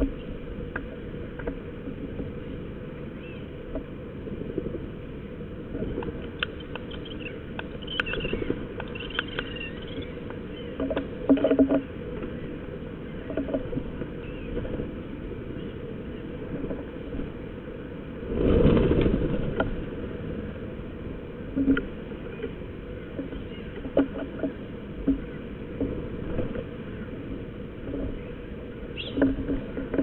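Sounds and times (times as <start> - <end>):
birds pecking taps and knocks: 5.8 - 12.4, 13.2 - 14.8, 21.6 - 26.6
short high bird calls: 6.9 - 10.8.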